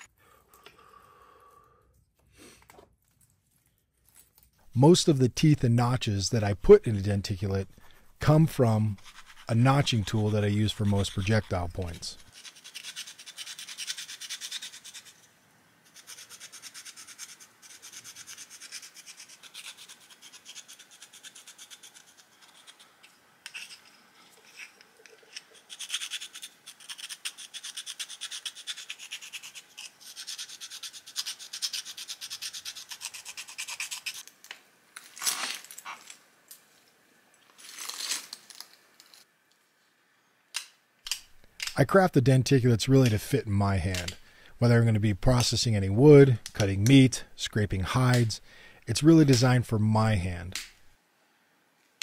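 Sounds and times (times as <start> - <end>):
tool scratching stone: 6.4 - 34.2.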